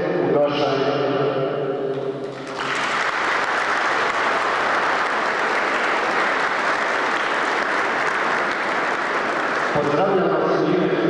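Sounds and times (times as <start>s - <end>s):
crowd applauding: 2.3s - 10.4s.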